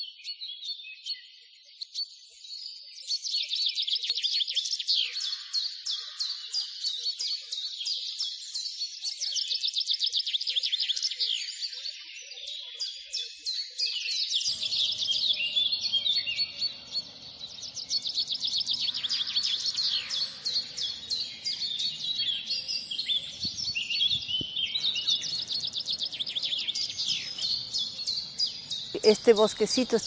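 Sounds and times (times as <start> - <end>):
small birds chirping and trilling: 0.0 - 30.0
faint outdoor hiss and rumble: 14.5 - 29.9.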